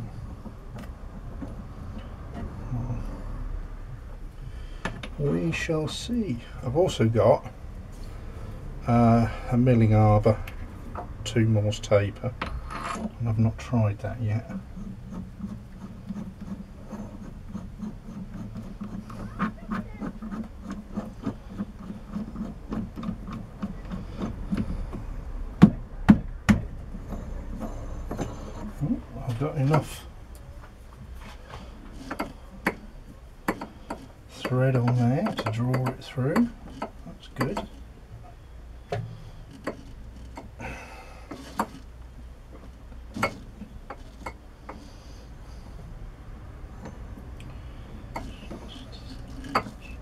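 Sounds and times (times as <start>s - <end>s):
short metal scrape: 12.4s - 13.2s
metallic clicks and knocks: 31.9s - 37.9s.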